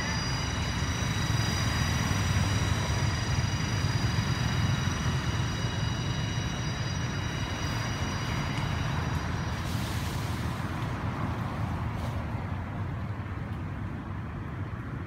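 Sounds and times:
thin high-pitched whine: 0.0s - 11.8s.

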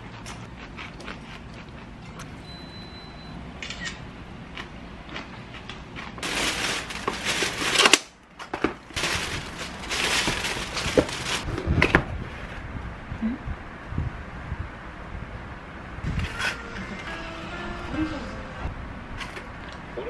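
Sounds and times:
plastic bag rustling: 6.2s - 11.5s.

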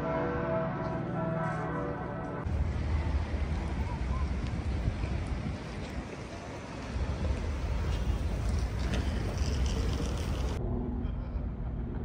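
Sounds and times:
road traffic rumble: 2.4s - 10.6s
wind on microphone: 2.5s - 10.8s.

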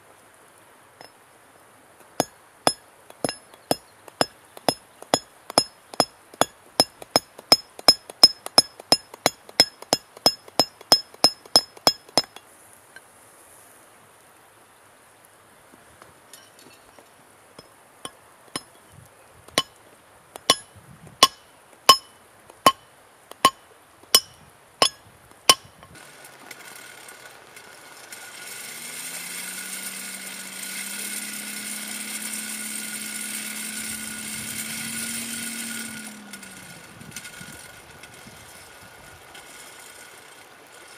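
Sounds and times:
hammer blows on steel: 20.4s - 26.0s
forge blower whirring: 25.5s - 40.9s.

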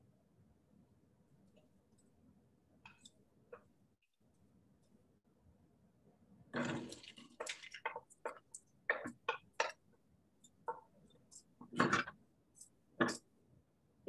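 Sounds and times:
irregular clicks and scrapes: 10.4s - 13.3s.

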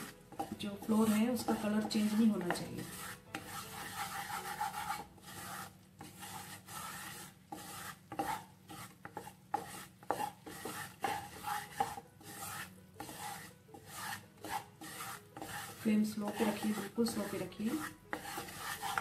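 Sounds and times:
wooden spatula scraping a pan: 0.0s - 19.0s.

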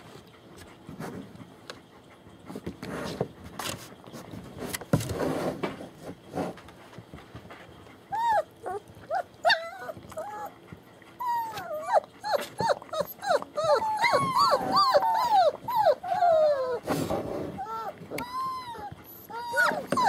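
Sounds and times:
puppies whining and whimpering: 8.1s - 20.0s.

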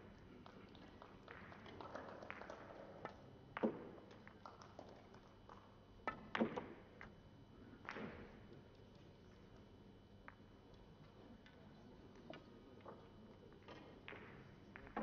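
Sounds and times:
billiard balls clicking: 0.4s - 7.1s, 11.4s - 15.0s.

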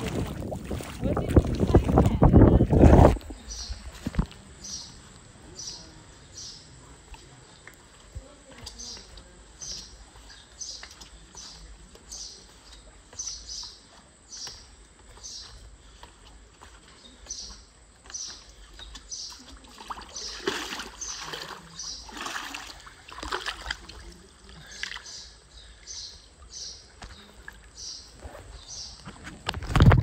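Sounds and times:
water splashing: 0.0s - 4.4s, 18.6s - 25.4s.

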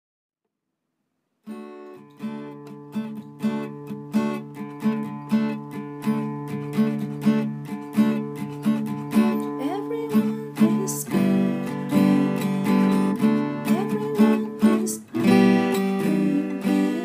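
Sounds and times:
acoustic guitar strumming: 1.5s - 17.0s.

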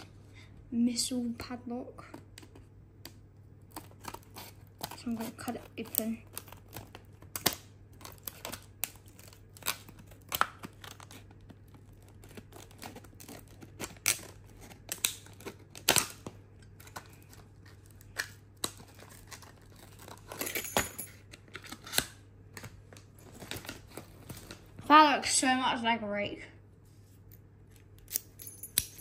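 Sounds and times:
plastic crackling: 2.0s - 20.5s
scissors snipping plastic: 2.4s - 20.4s.

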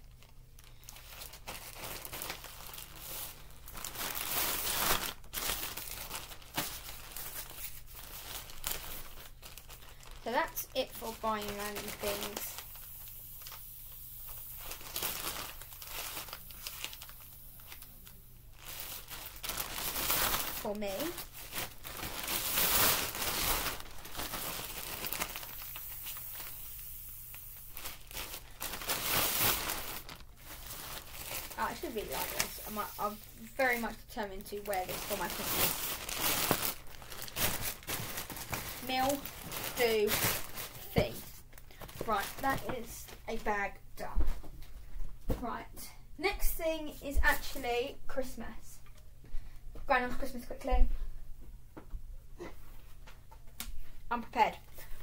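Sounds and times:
plastic bags crinkling: 0.0s - 43.6s.

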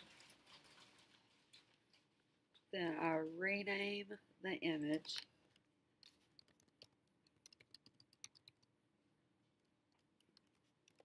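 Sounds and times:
typing on computer keyboard: 6.0s - 8.7s, 10.0s - 11.0s.

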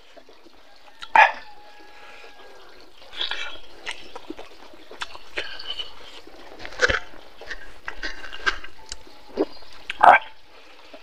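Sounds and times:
man chewing with mouth noises: 0.0s - 11.0s
mouth smacks: 3.1s - 10.3s.

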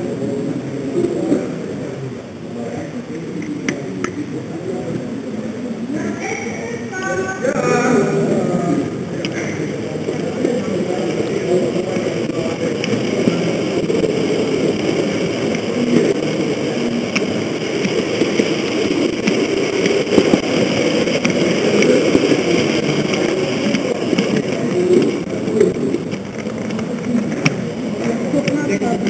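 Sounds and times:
model train motor hum: 2.6s - 29.0s
wheel rumble: 7.7s - 29.0s
wheels clicking over rail joints: 9.1s - 29.0s.

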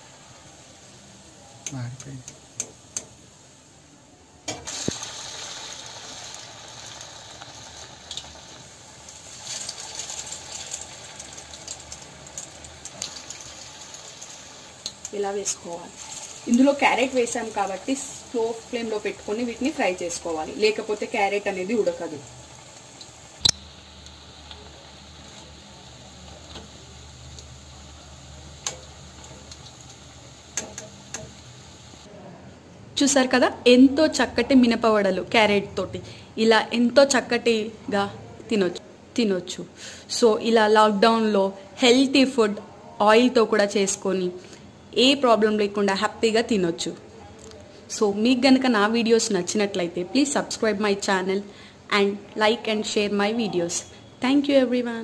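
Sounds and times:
batter sizzling in hot oil: 0.0s - 3.7s, 4.5s - 32.1s.

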